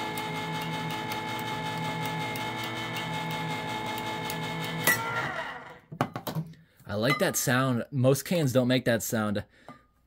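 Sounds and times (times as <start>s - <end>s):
electric can opener motor humming: 0.0s - 5.9s.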